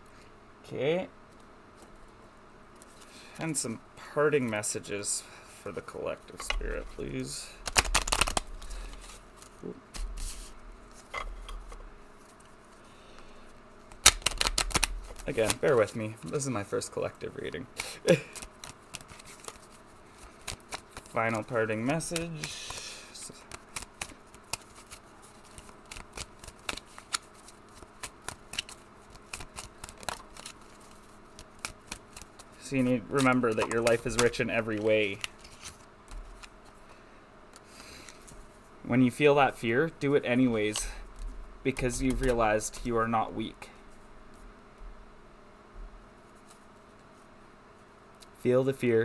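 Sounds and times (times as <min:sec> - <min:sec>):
playing cards tapping and sliding: 0:06.4 - 0:12.5, 0:13.9 - 0:16.4, 0:17.8 - 0:36.8.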